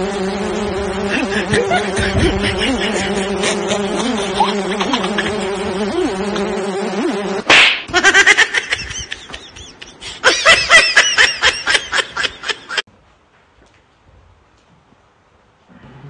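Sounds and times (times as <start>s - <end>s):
high-pitched giggling: 1.0s - 6.6s, 7.9s - 12.8s.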